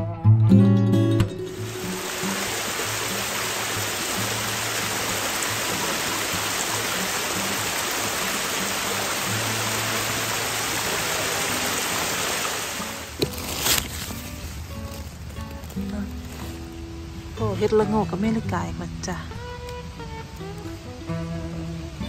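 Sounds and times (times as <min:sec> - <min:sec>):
stream cascading over rocks: 0:01.4 - 0:17.8
soft background music: 0:12.9 - 0:22.0.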